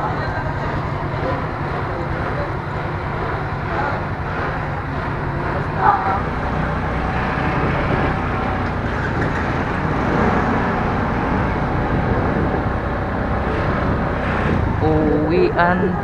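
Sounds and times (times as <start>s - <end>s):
road noise: 0.0s - 16.0s
vehicle engine rumble: 0.0s - 16.0s.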